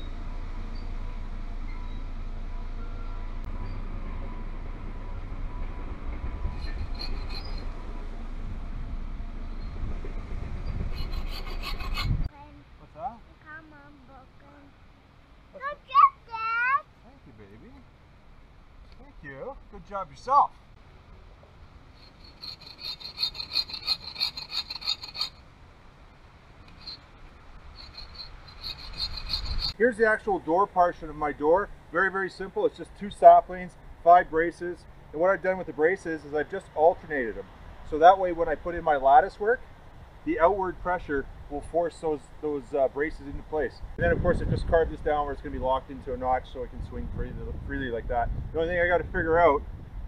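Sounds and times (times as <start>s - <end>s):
saw rasping through wood: 10.8s - 12.3s, 22.0s - 25.4s, 27.8s - 29.8s.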